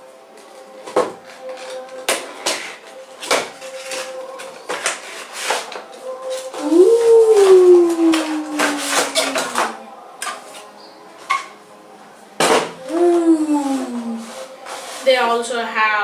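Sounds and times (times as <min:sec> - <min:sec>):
long howl-like gliding tone: 0:06.0 - 0:10.1.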